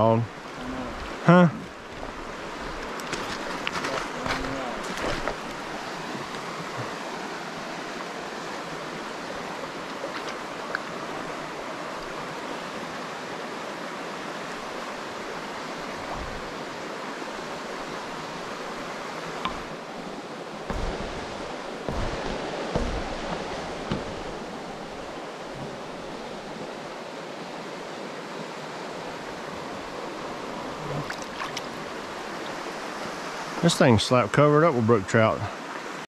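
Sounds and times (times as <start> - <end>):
creek running over rocks: 0.0 - 36.0
soft knocks: 20.7 - 24.4.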